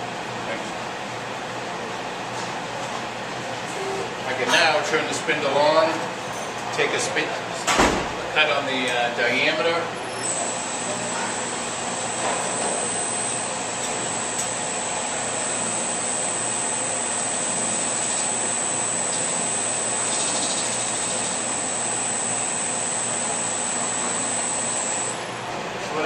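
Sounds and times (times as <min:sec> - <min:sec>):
high-pitched whine: 0:10.2 - 0:25.4
lathe running: 0:10.2 - 0:25.6.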